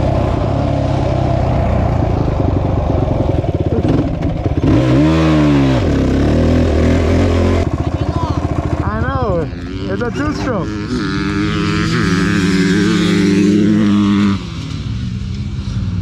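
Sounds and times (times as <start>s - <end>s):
small engine idling: 6.6s - 10.7s.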